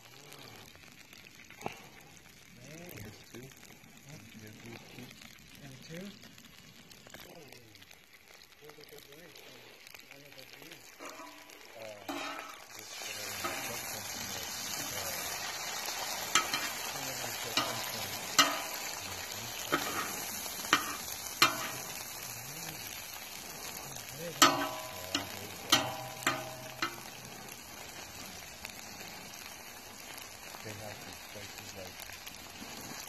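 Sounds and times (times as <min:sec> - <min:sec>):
hash browns sizzling: 0:00.0 - 0:33.0
metal spatula scraping and tapping: 0:11.0 - 0:12.7, 0:13.4 - 0:13.8, 0:16.4 - 0:16.8, 0:17.5 - 0:19.0, 0:19.7 - 0:22.0, 0:24.4 - 0:27.2.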